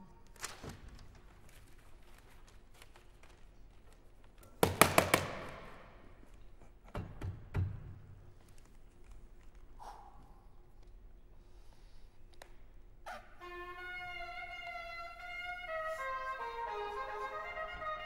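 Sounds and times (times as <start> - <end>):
sharp knocks on wooden box: 4.6 - 5.8.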